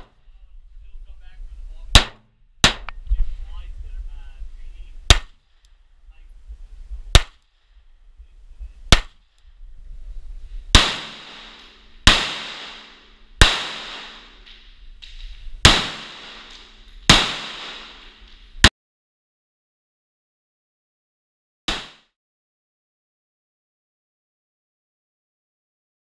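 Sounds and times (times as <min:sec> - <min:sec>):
pistol shots with echoing tails: 0:01.9 - 0:03.0, 0:10.8 - 0:14.7, 0:15.6 - 0:18.4.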